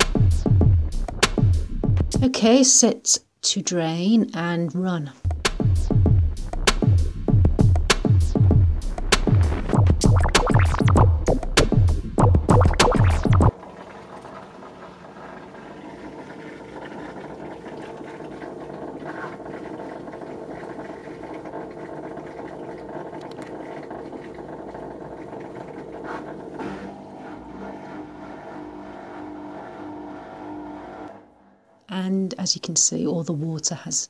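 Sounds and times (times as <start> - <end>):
washing machine drain pump humming: 9.6 - 31.5.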